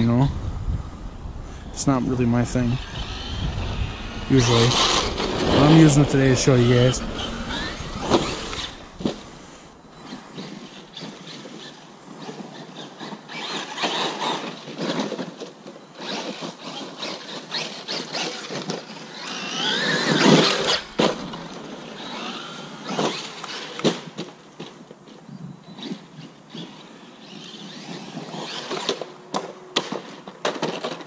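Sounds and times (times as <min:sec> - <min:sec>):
electric motor whine: 0:00.3 - 0:12.7, 0:18.4 - 0:23.8
tyres on dirt: 0:01.8 - 0:25.3.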